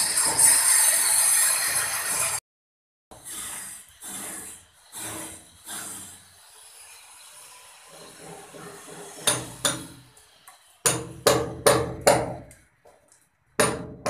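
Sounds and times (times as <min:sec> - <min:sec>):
hammer blows on brick wall: 0:10.8 - 0:12.5.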